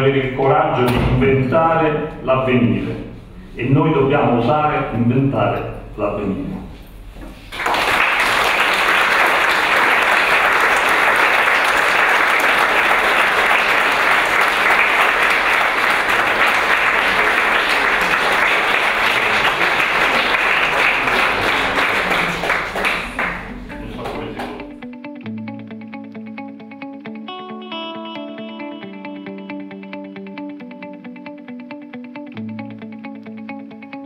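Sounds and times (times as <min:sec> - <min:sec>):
audience applauding: 0:07.4 - 0:24.8.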